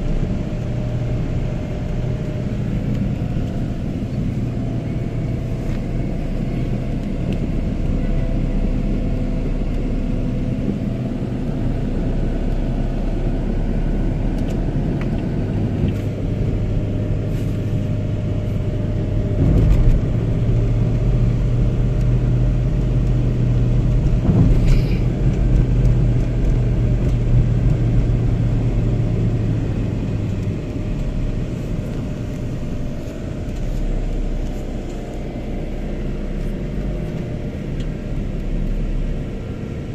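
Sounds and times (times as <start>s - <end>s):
car engine and tyres rumbling: 0.0s - 39.9s.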